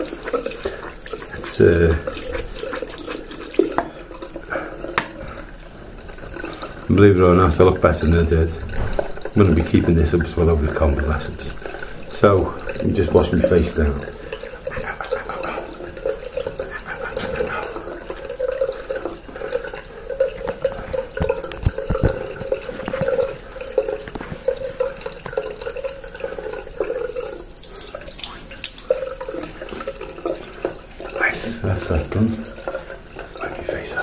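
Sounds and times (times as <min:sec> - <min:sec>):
hands splashing water: 0:00.0 - 0:05.4, 0:11.2 - 0:30.4
water running from a tap: 0:00.0 - 0:34.0.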